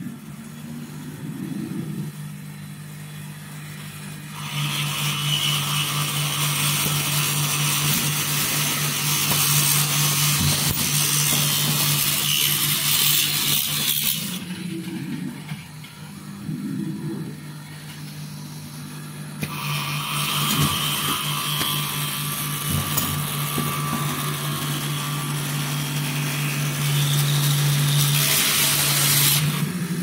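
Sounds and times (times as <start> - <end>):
machine low hum: 0.0 - 30.0.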